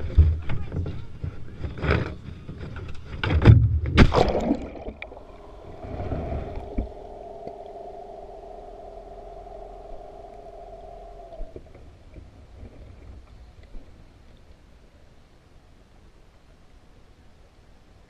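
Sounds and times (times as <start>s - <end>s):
splashing and knocking in water: 3.2s - 5.1s
underwater hum with held tones: 3.8s - 16.8s.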